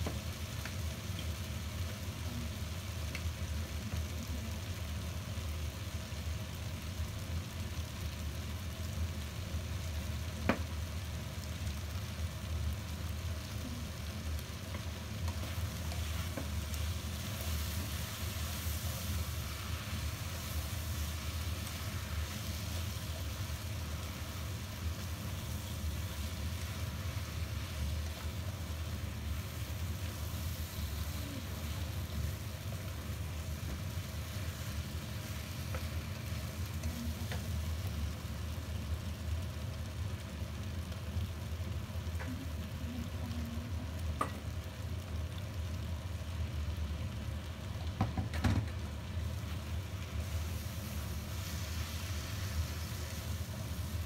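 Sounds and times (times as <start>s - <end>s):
food sizzling in a wok: 0.0s - 54.0s
steady low hum: 11.0s - 47.8s
spatula stirring in a wok: 13.1s - 38.0s, 49.2s - 54.0s.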